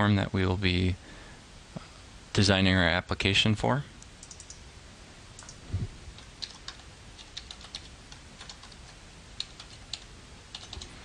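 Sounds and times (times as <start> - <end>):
keyboard keystrokes: 4.2 - 4.6, 6.2 - 11.0.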